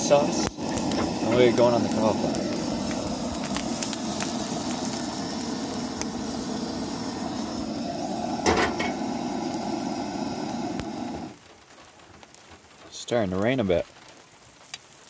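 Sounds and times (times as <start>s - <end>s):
gas stove burner roaring: 0.0s - 11.4s
metal cookware clank: 8.4s - 9.0s.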